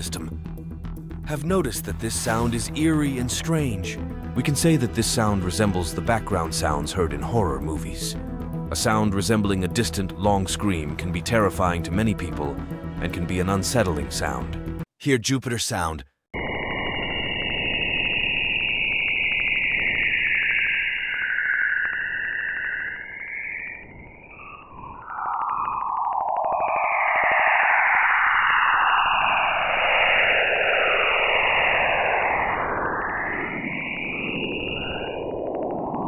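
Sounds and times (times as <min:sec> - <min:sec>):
swirling sliding high tones: 0:16.4 - 0:36.0.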